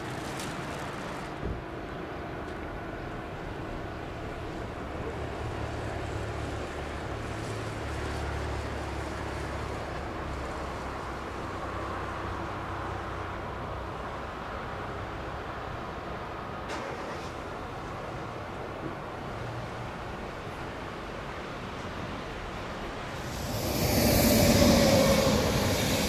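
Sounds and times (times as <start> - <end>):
diesel engine drone: 23.0 - 26.0.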